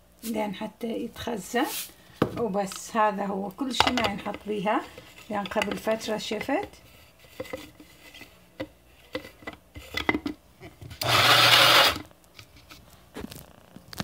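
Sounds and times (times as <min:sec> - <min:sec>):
electric grinder whirring: 0:11.0 - 0:12.1.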